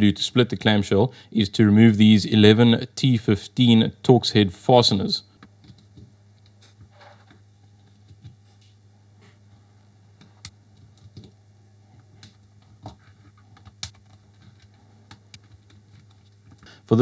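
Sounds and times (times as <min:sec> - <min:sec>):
faint low hum: 0:00.0 - 0:17.0.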